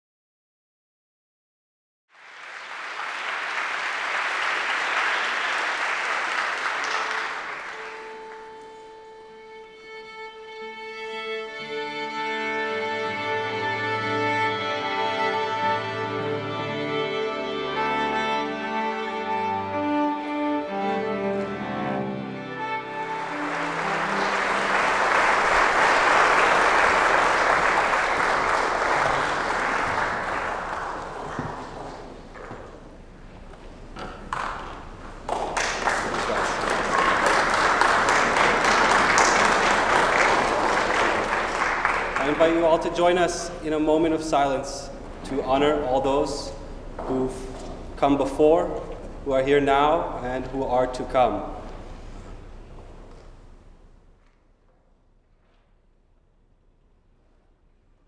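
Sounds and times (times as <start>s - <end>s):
audience applauding: 2.1s - 9.0s, 22.8s - 32.7s, 34.3s - 43.5s
string orchestra: 7.4s - 32.2s.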